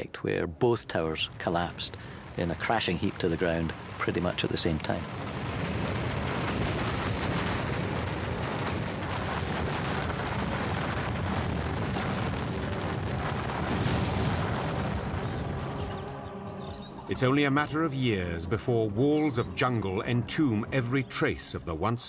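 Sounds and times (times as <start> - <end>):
deep collapse rumble: 0.0 - 22.0
falling debris crashes: 2.1 - 15.9.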